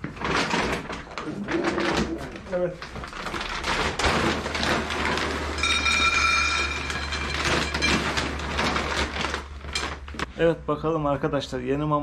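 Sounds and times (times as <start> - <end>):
dry kibble rattling in a bowl: 2.5 - 10.2
bright metallic ring: 5.6 - 7.3.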